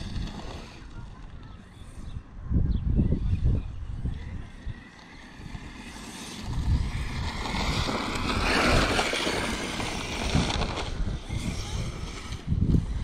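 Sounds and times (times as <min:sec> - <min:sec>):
wind buffeting microphone: 0:00.0 - 0:13.0
electric motor whining: 0:03.0 - 0:13.0.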